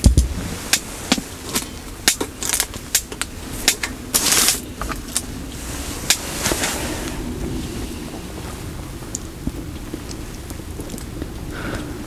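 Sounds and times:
short rustle: 3.4s - 9.0s.

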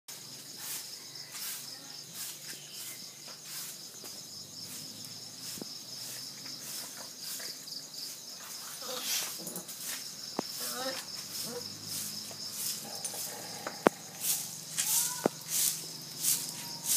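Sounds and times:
insects chirring: 0.1s - 16.9s.

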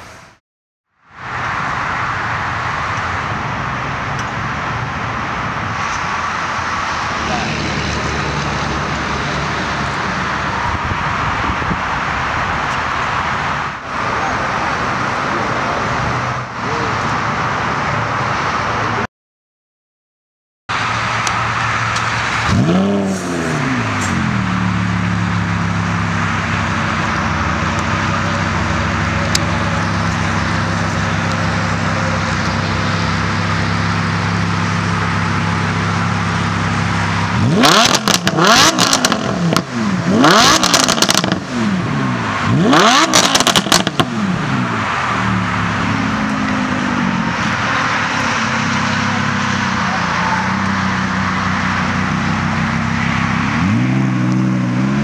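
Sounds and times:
sports car engine revving and idling: 20.8s - 55.0s
exhaust crackles: 21.9s - 55.0s.

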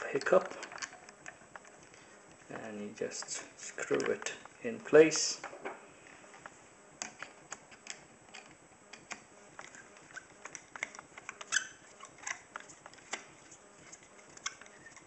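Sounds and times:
small metal clicks: 0.0s - 1.7s
screwdriver scrape: 9.6s - 15.0s.

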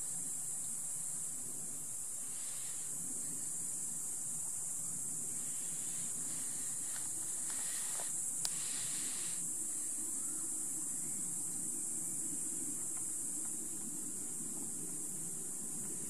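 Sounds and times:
high-pitched hiss: 0.0s - 16.0s
soft rustling noise: 5.3s - 10.0s.

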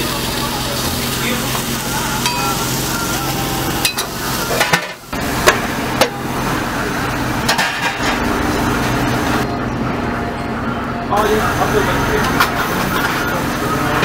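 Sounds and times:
sizzling: 0.0s - 9.5s, 11.1s - 14.0s.

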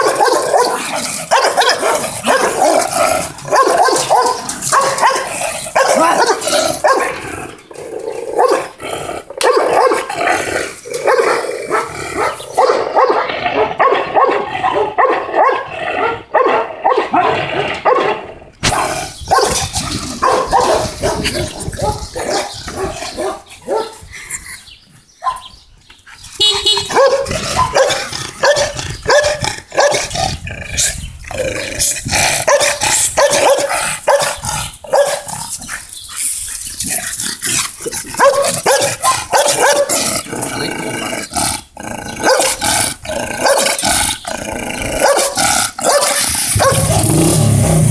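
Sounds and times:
dog barking fiercely: 0.0s - 7.3s, 8.1s - 10.4s, 11.0s - 24.0s, 26.4s - 30.3s, 32.2s - 35.4s, 37.8s - 40.3s, 42.2s - 44.2s, 44.8s - 47.9s.

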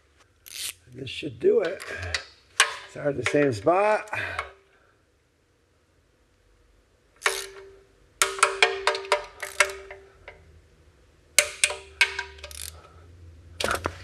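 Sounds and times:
torque wrench ratcheting clicks: 0.4s - 0.8s, 7.2s - 7.6s, 8.2s - 10.4s, 11.4s - 12.9s.

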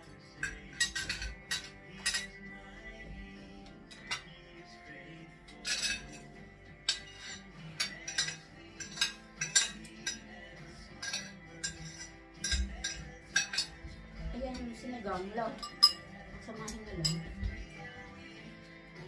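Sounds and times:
faint music: 0.0s - 19.0s
cutlery clinking on a plate: 0.2s - 2.5s, 3.9s - 4.4s, 5.5s - 14.0s, 15.6s - 17.6s.

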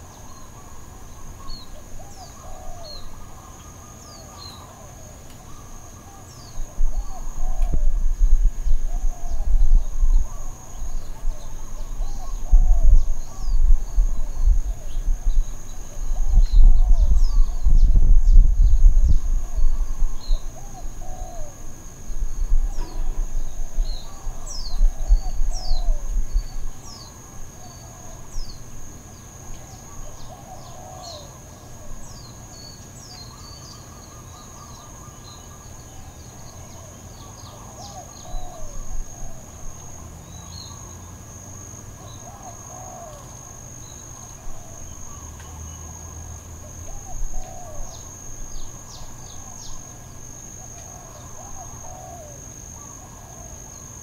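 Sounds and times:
high-pitched insect drone: 0.0s - 54.0s
bird chirps: 8.6s - 21.5s, 32.0s - 39.4s.

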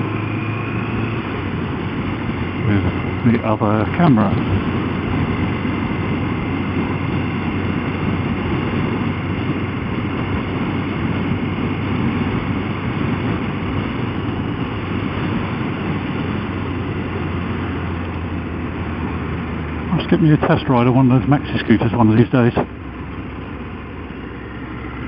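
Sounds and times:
motorcycle engine low hum: 0.0s - 25.0s
wind and road rush: 0.0s - 25.0s.

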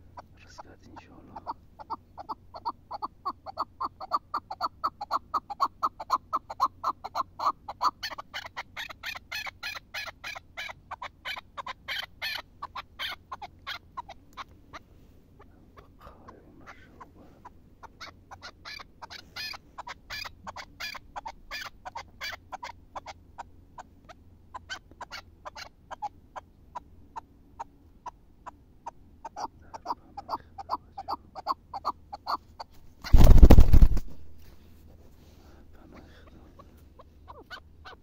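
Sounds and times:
partridge clucking calls: 0.0s - 14.8s, 15.4s - 34.0s, 35.9s - 38.0s
loud rustling: 33.1s - 34.4s.

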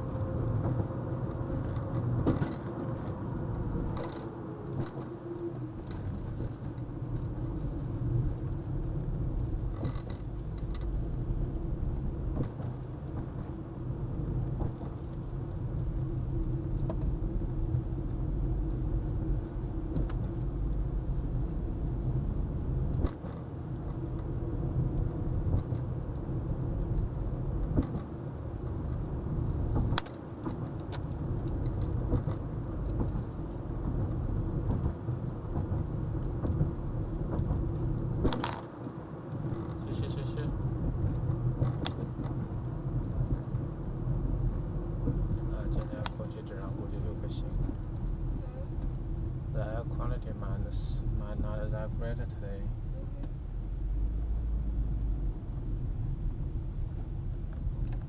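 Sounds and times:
tyre and engine rumble: 0.0s - 58.0s
car knocks over bumps: 1.6s - 3.2s, 12.1s - 13.6s, 14.4s - 15.2s, 16.7s - 17.8s, 26.9s - 40.0s, 40.7s - 43.7s.

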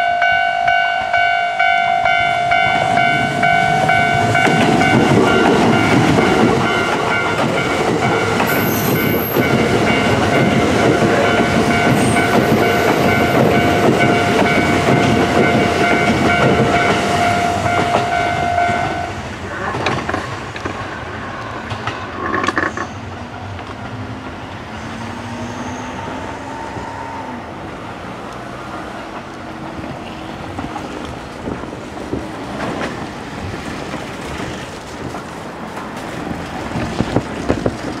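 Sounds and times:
train wheels rumbling on rail: 0.0s - 38.0s.

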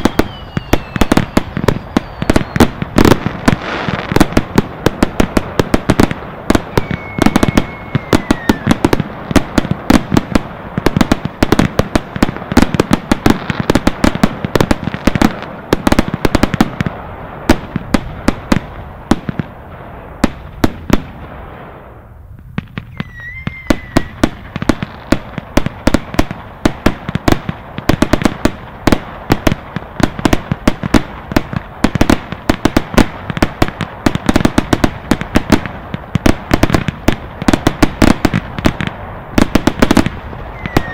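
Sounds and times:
falling firework whistle: 0.0s - 4.4s, 5.3s - 10.2s, 21.4s - 25.2s, 39.4s - 40.9s
fireworks bangs and crackles: 0.0s - 40.9s.

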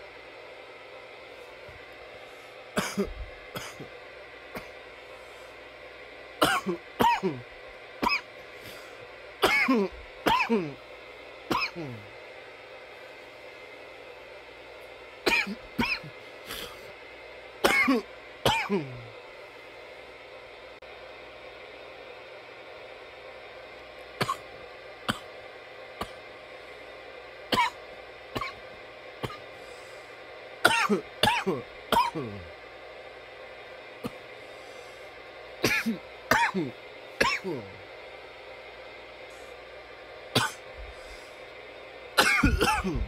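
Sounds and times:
man coughing: 2.8s - 3.9s, 6.4s - 8.3s, 9.4s - 10.8s, 11.5s - 12.1s, 15.3s - 16.8s, 17.6s - 19.1s, 30.7s - 32.5s, 35.6s - 37.8s, 40.4s - 40.7s, 42.2s - 43.0s.

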